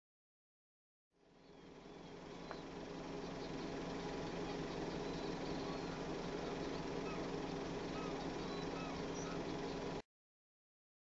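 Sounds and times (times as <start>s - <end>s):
low hum with hiss: 1.2s - 10.0s
faint high chirps: 1.4s - 10.0s.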